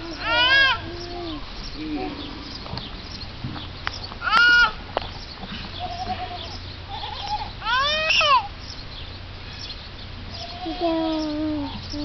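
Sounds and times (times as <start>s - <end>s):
animal bleating: 5.7s - 8.4s, 10.4s - 11.0s.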